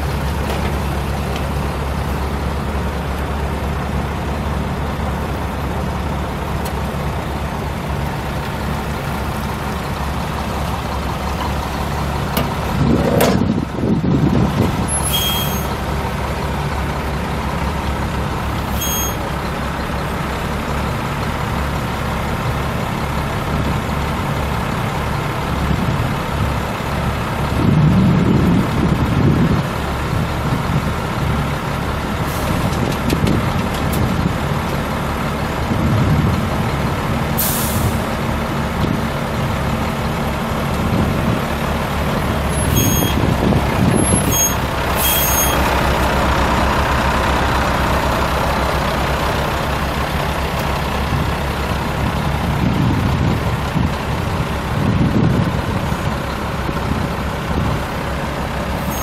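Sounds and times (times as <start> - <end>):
diesel truck engine running: 0.0 - 59.0
air brake hiss: 15.0 - 15.8, 37.4 - 38.0, 45.0 - 45.6.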